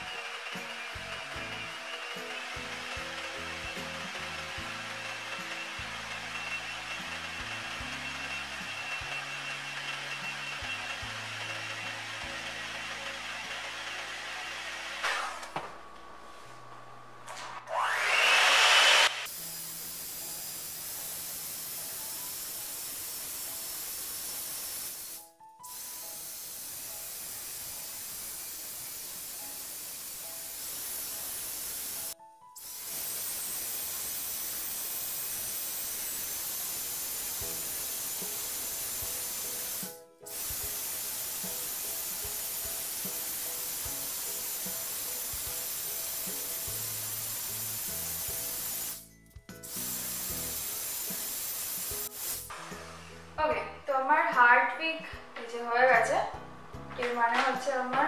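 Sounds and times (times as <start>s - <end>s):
electric hand mixer: 0.0s - 15.7s, 17.3s - 53.3s
quiet background music: 19.3s - 58.0s.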